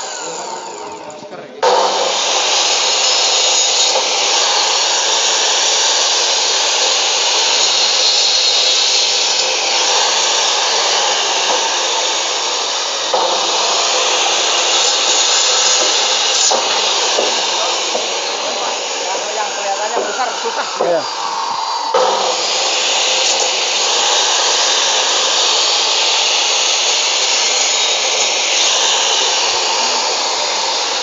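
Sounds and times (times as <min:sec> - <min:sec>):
saw cutting through bone: 0:00.0 - 0:31.0.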